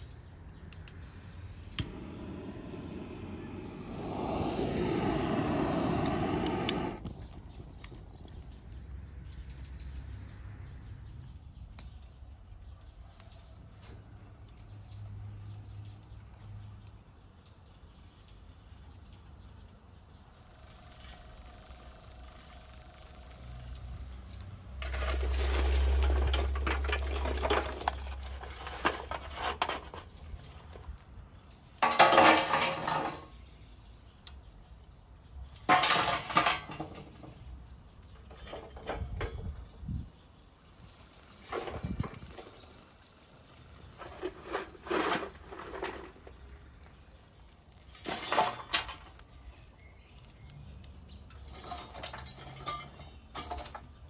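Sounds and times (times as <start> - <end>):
dishes and utensils clattering: 31.8 - 33.3.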